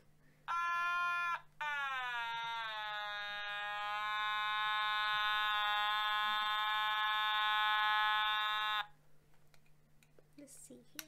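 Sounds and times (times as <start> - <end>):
buzzy electronic tone: 0.5 - 8.9.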